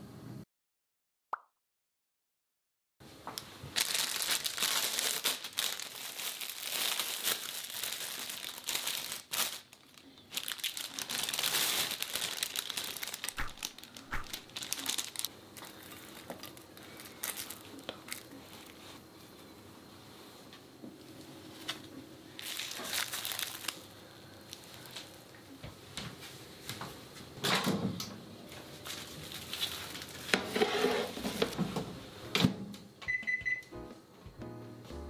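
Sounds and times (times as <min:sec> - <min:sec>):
plastic film crinkling: 0:03.4 - 0:19.0, 0:21.6 - 0:25.2, 0:28.7 - 0:30.4.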